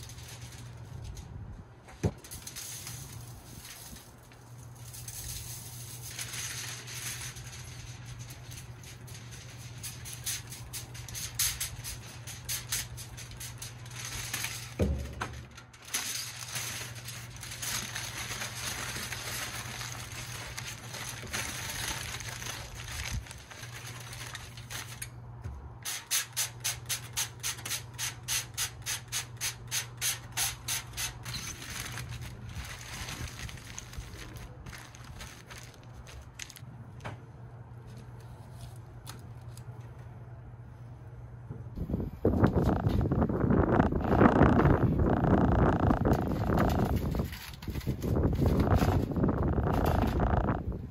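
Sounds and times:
aluminium foil crinkling: 0:00.0 - 0:25.2, 0:25.8 - 0:36.7, 0:37.8 - 0:40.0, 0:43.5 - 0:50.9.

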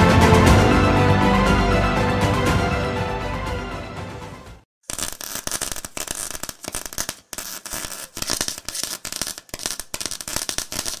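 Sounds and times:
crackling sputtering clicks and hiss: 0:04.8 - 0:11.0.

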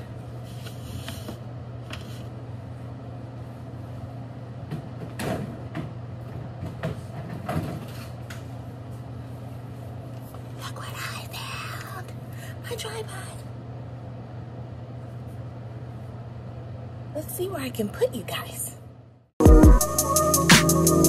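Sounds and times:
low room hum: 0:00.0 - 0:19.3
objects knocking and clattering: 0:04.7 - 0:08.1.

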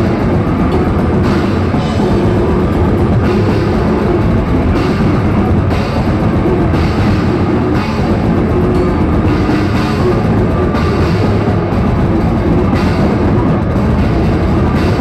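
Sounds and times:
bass guitar: 0:00.0 - 0:15.0
distorted electric guitars: 0:00.0 - 0:15.0
drum kit: 0:00.0 - 0:15.0.

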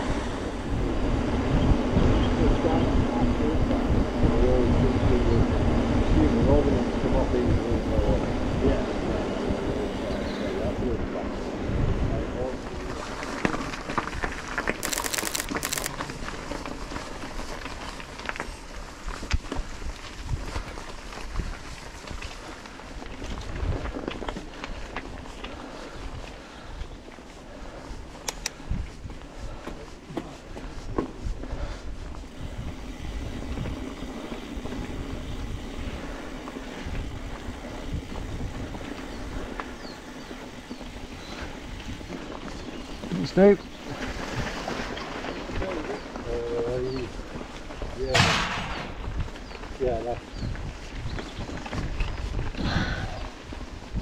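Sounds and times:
bike tyres on rough trail: 0:00.0 - 0:54.0
rapid high ticking: 0:14.8 - 0:15.9.

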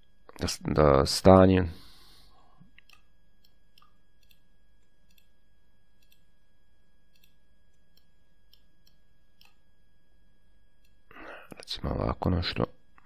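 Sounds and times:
low recording hum: 0:00.0 - 0:13.0
computer mouse clicking: 0:02.7 - 0:05.4, 0:06.0 - 0:06.3, 0:07.1 - 0:09.6.

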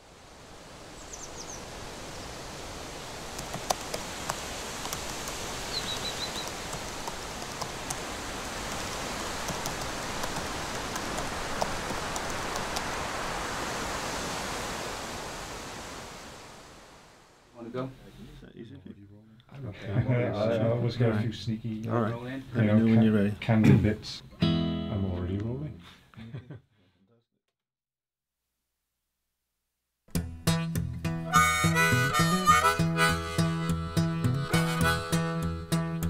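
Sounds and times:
rushing hiss: 0:00.3 - 0:17.2
high bird chirps: 0:01.0 - 0:01.6, 0:05.7 - 0:06.6
faint clicks: 0:03.3 - 0:13.0.

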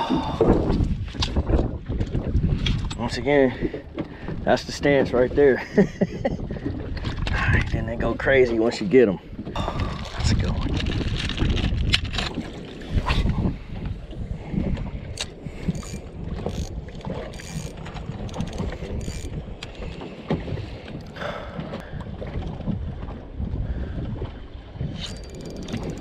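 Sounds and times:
water slapping boat hull: 0:00.0 - 0:26.0
wind buffeting microphone: 0:00.0 - 0:26.0
gear knocks and clicks: 0:10.0 - 0:12.5, 0:15.1 - 0:21.8, 0:25.0 - 0:26.0.

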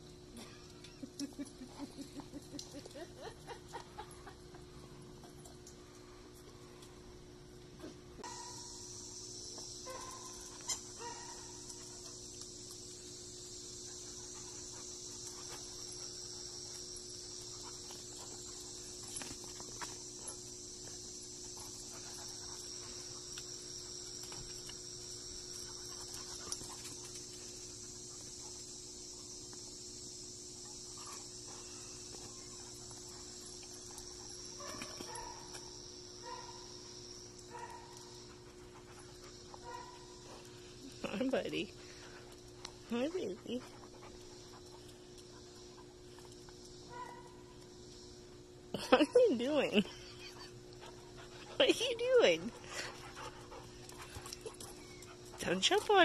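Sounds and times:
insects chirring: 0:00.0 - 0:56.0
low steady hum: 0:00.0 - 0:56.0.

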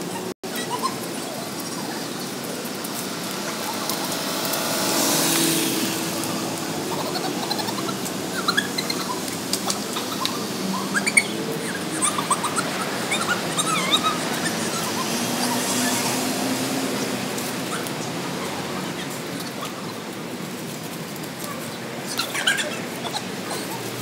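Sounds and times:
street traffic noise: 0:00.0 - 0:24.0
car passing: 0:03.0 - 0:19.1
small birds chirping: 0:06.2 - 0:16.4.

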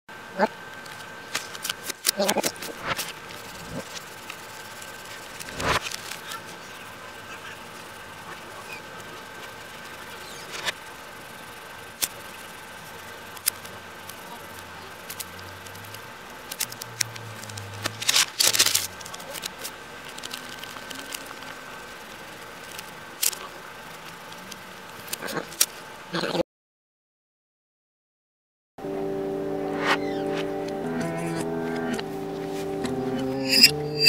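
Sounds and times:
page turning: 0:05.1 - 0:06.4, 0:16.5 - 0:21.5.

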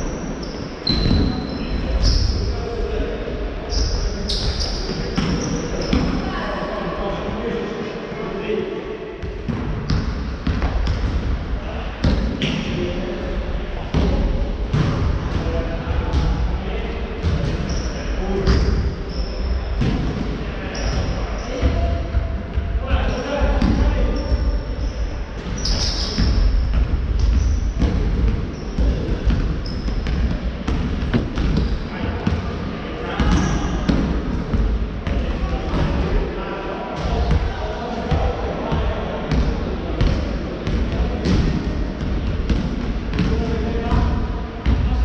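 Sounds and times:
shoes squeaking on floor: 0:00.0 - 0:02.5, 0:03.7 - 0:06.0, 0:17.6 - 0:19.6, 0:20.7 - 0:21.6, 0:24.1 - 0:26.6, 0:27.2 - 0:27.8, 0:28.4 - 0:30.2
ball bouncing on wooden court: 0:09.2 - 0:11.4, 0:25.4 - 0:32.6, 0:39.3 - 0:45.0.

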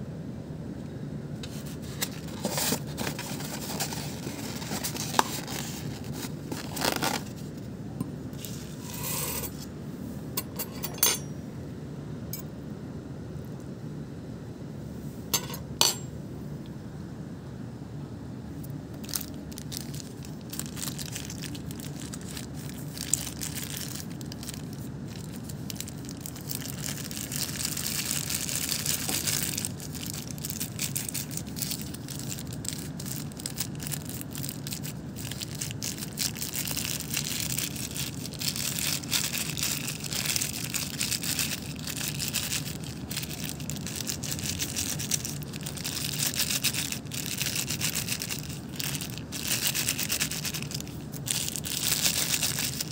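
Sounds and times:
steady low hum: 0:00.0 - 0:52.9
plastic bag crinkling: 0:01.4 - 0:07.7, 0:19.0 - 0:52.9.

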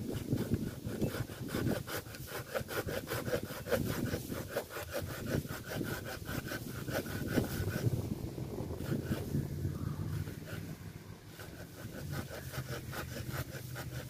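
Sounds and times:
hand saw cutting branch: 0:00.0 - 0:08.1, 0:08.7 - 0:14.0.

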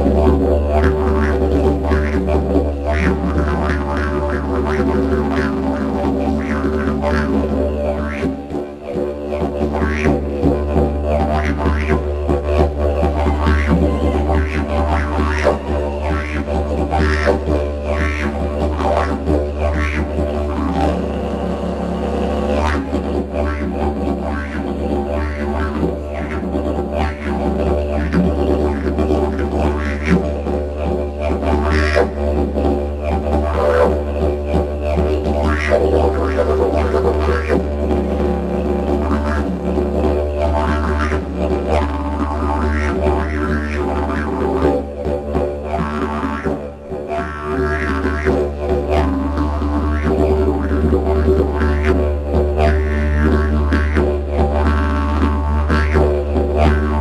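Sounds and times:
didgeridoo drone: 0:00.0 - 0:57.0.

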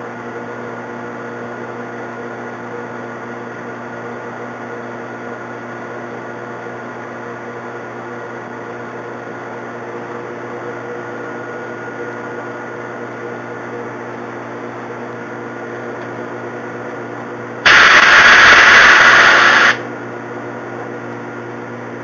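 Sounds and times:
loud hiss burst: 0:17.7 - 0:19.8.

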